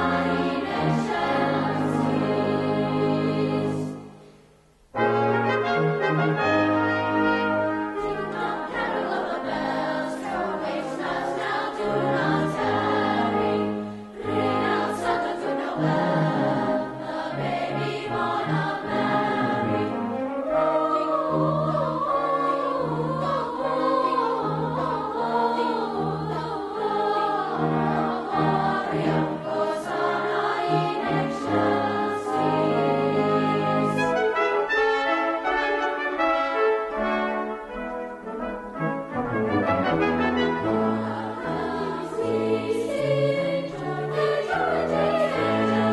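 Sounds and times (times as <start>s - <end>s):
choir singing holiday music: 0.0s - 45.9s
instrumental accompaniment: 0.0s - 45.9s.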